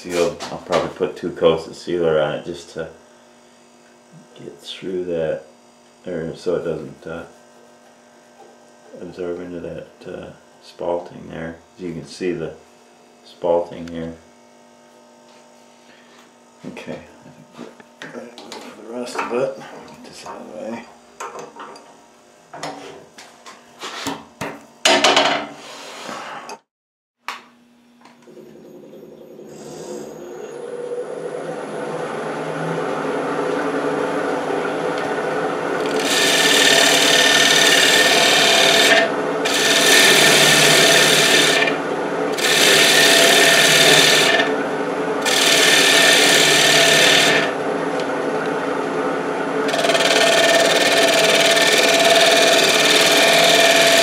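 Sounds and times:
wood lathe humming: 0:28.2 - 0:54.0
scraper cutting spinning wood: 0:31.8 - 0:54.0.

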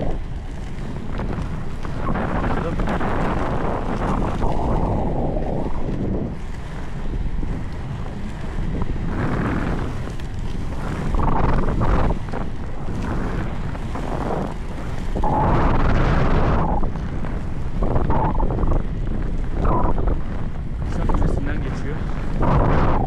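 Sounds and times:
skate wheels rolling on asphalt: 0:00.0 - 0:23.0
wind buffeting microphone: 0:00.0 - 0:23.0.

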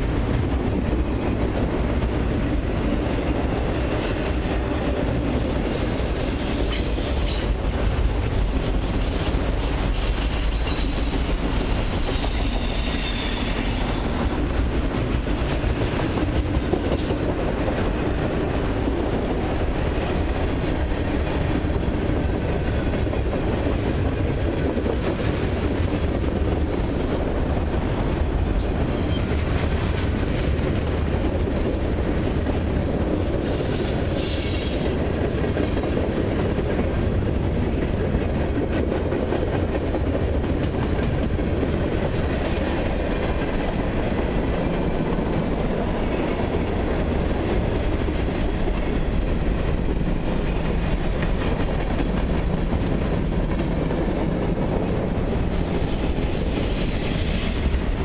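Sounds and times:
train wheels rumbling and clattering: 0:00.0 - 0:58.0
high-pitched wheel squeal: 0:12.2 - 0:13.8.

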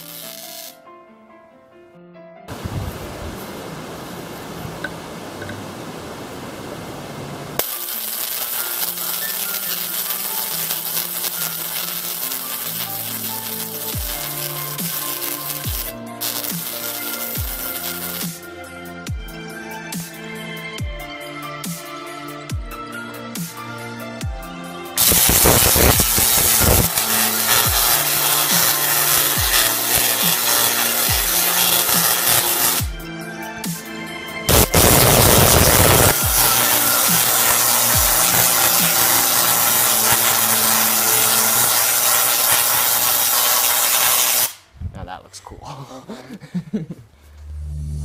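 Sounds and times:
tesla coil crackling discharges: 0:00.0 - 0:00.8, 0:07.6 - 0:18.4, 0:25.0 - 0:32.9, 0:34.5 - 0:44.7
background music: 0:00.0 - 0:03.1, 0:07.6 - 0:46.7
rushing hiss: 0:07.6 - 0:18.4, 0:25.0 - 0:32.8, 0:34.5 - 0:44.6
electronic music with bass sweeps: 0:31.0 - 0:39.0.

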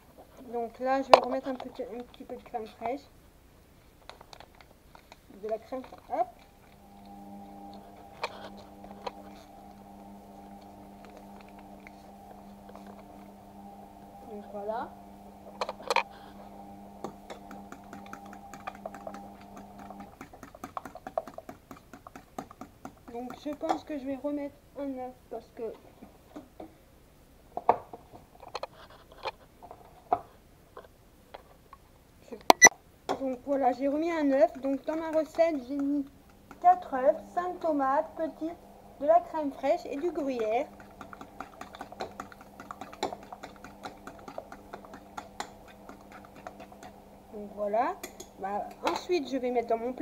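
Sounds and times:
washing machine motor hum: 0:05.3 - 0:21.8, 0:33.5 - 0:50.0
fork clicking in bowl: 0:34.3 - 0:36.7, 0:39.9 - 0:47.0.

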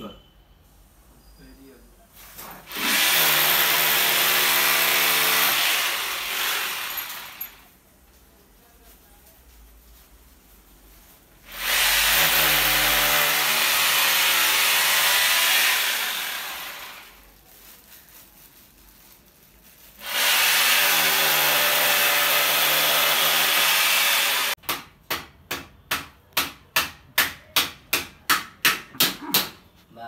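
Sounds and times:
electric drill boring into wall: 0:02.7 - 0:07.6, 0:11.5 - 0:17.2, 0:20.0 - 0:24.6.

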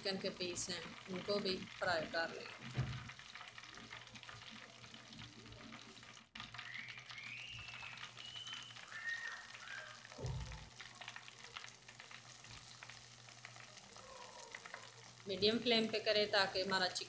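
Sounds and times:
chicken sizzling in oil: 0:00.0 - 0:17.0
low knock: 0:10.2 - 0:10.7.

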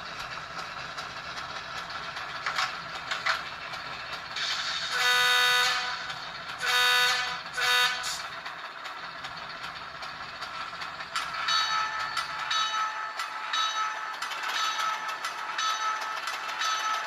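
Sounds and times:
diesel engine running quietly: 0:00.0 - 0:17.0
diesel locomotive horn blasts: 0:04.9 - 0:08.2.

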